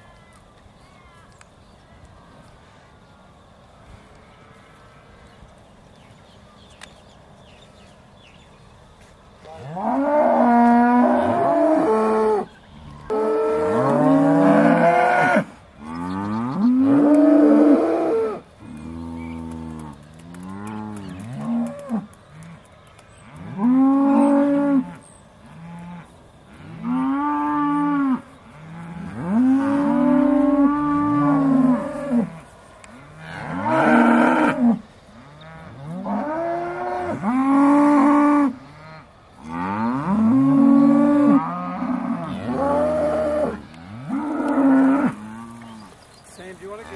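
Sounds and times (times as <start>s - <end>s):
cows mooing: 9.6s - 22.5s, 23.3s - 32.4s, 33.0s - 46.0s.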